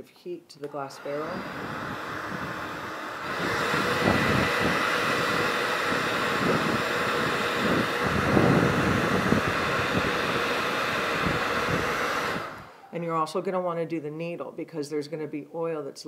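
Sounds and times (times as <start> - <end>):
hot-air blower running: 0.6 - 13.0
airflow buffeting microphone: 1.0 - 12.8.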